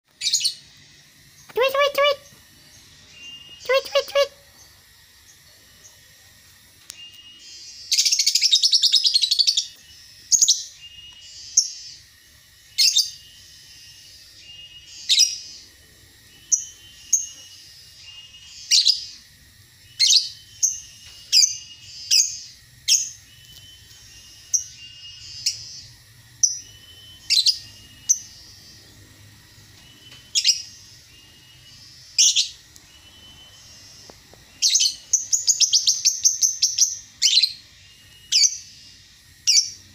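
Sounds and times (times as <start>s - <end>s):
songbird chirping and trilling: 0.1s - 39.9s.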